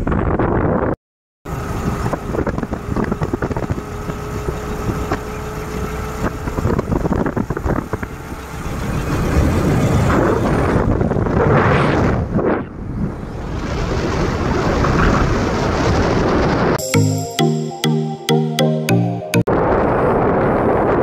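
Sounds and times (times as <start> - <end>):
motorcycle engine at road speed: 1.5 - 9.0.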